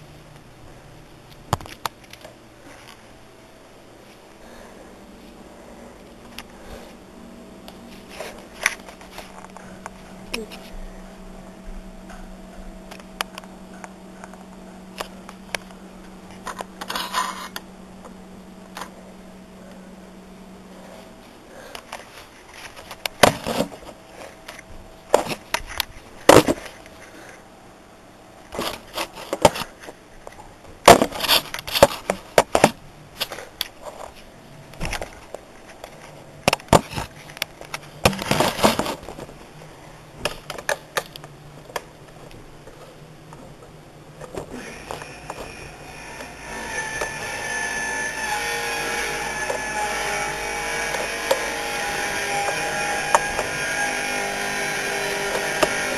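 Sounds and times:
steady low hum: 0.0 - 55.9
small parts clicking and scraping: 12.9 - 17.7, 44.2 - 55.9.

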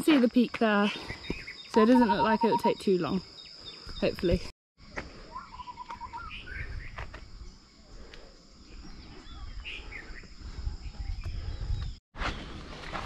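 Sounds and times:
bird chirps: 0.9 - 4.4, 5.3 - 8.0.

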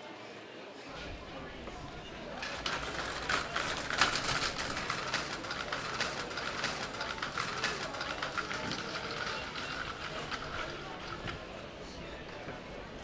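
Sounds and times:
cart rattling over stone paving: 1.9 - 11.6.

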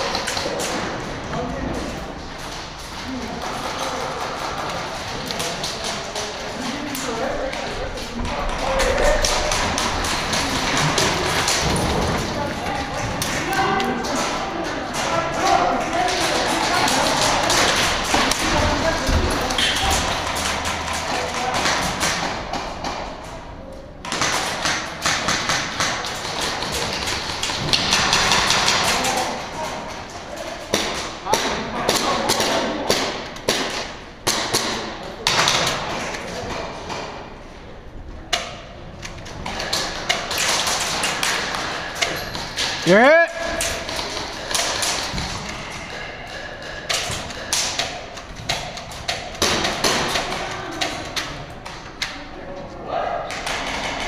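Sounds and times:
airsoft guns firing: 24.0 - 29.2, 46.6 - 51.1.

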